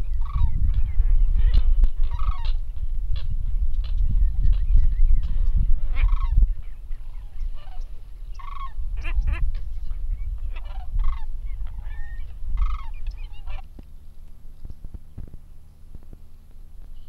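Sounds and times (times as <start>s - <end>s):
steady low rumble: 0.0s - 17.0s
geese honking: 0.1s - 0.7s, 1.4s - 2.6s, 5.8s - 14.1s.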